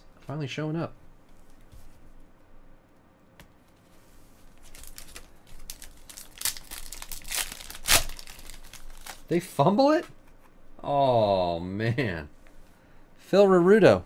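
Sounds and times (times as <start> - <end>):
foil wrapper tearing and crinkling: 4.6 - 9.4.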